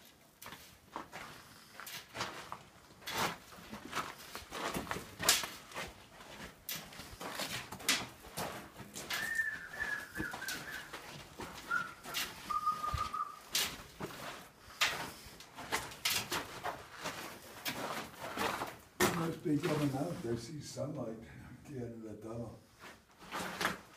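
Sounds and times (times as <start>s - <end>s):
footsteps crunching on gravelly sand: 0.4s - 20.4s
drawn-out whistled note: 9.2s - 10.9s, 11.7s - 13.4s.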